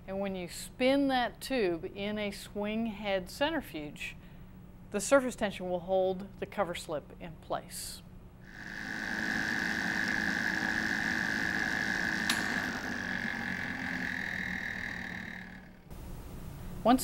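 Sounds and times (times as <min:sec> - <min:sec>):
centrifuge whining: 0:08.5 - 0:15.9
sharp click: 0:12.2 - 0:12.6.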